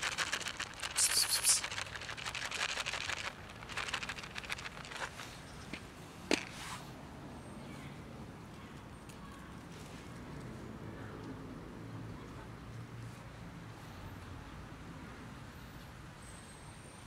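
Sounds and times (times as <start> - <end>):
cats crunching kibble: 0.0 - 5.4
dry cat food rattling in tub: 0.0 - 5.4
short hiss: 0.9 - 1.6.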